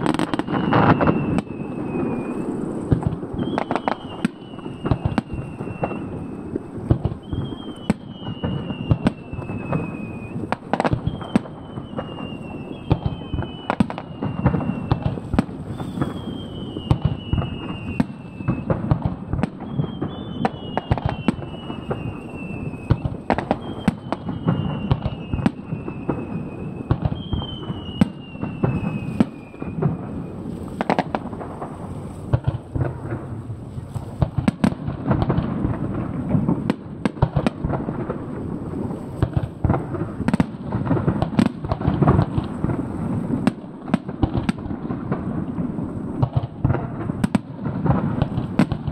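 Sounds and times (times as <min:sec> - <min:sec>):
falling firework whistles: 0:00.0 - 0:35.4
firework shells bursting: 0:00.0 - 0:48.9.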